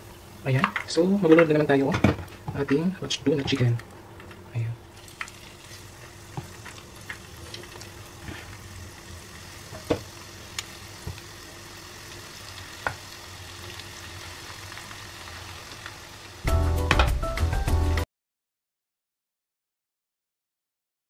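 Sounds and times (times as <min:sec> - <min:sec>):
chicken sizzling in hot oil: 0:04.9 - 0:16.5.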